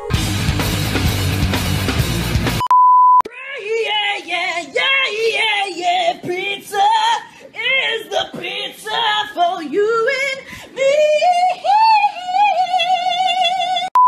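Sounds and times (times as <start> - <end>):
loud dense music: 0.0 - 2.6
electronic beep: 2.6 - 3.2
high voice singing: 3.2 - 14.0.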